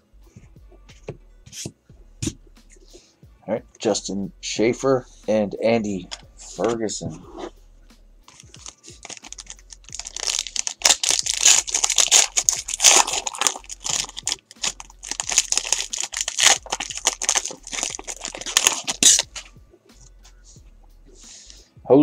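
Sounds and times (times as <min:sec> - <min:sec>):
foil wrapper tearing and crinkling: 0:08.3 - 0:19.4.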